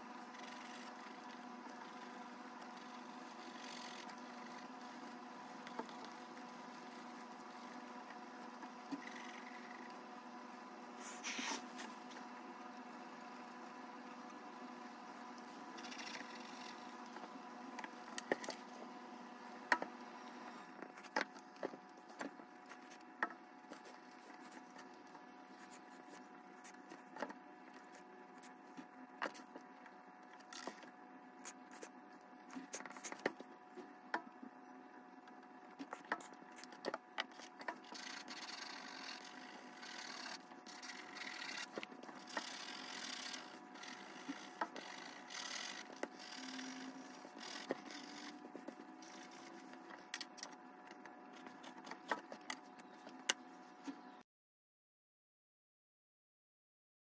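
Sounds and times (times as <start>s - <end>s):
pencil scratching on paper: 0.0s - 10.0s, 11.0s - 12.0s, 15.5s - 17.3s, 23.7s - 29.6s, 35.8s - 50.0s
steady low hum: 0.0s - 54.2s
eraser rubbing on paper: 11.0s - 11.9s, 37.8s - 49.8s.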